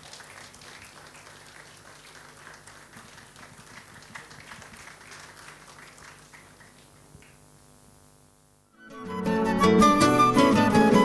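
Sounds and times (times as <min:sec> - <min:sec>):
small audience applause: 0:00.0 - 0:07.4.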